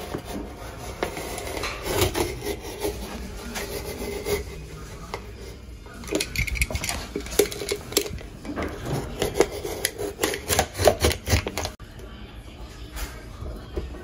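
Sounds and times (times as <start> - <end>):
knife scraping painted drywall: 0.0 - 4.8.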